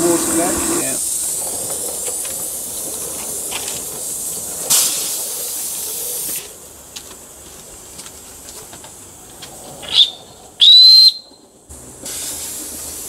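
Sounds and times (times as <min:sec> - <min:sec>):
steam hissing: 0:00.0 - 0:07.3, 0:11.7 - 0:13.0.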